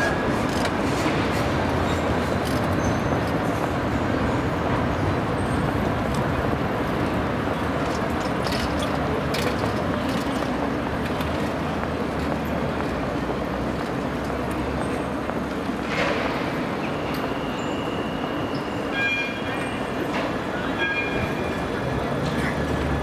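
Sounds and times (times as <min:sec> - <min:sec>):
tram wheels rumbling on rail: 0:00.0 - 0:23.0
sharp clicks of wheels: 0:00.2 - 0:03.9, 0:05.9 - 0:17.3.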